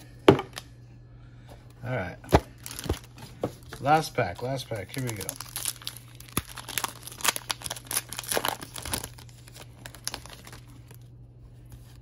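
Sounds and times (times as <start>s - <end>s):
foil pack crinkling: 2.3s - 11.1s.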